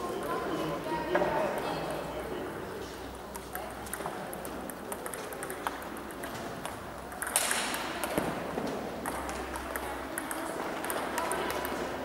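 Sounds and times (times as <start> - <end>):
background hall noise: 0.0 - 12.0
table tennis balls clicking: 3.3 - 12.0.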